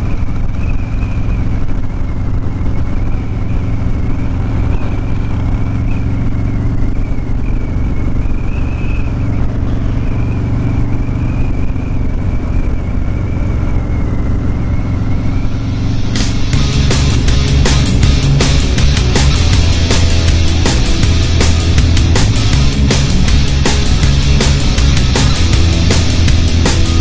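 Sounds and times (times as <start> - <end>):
motorcycle engine cruising: 0.0 - 27.0
hard rock music: 15.4 - 27.0.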